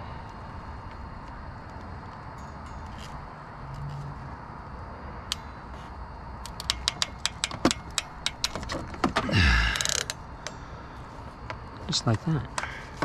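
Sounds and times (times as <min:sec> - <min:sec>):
crimping tool clicks: 0:06.4 - 0:08.6.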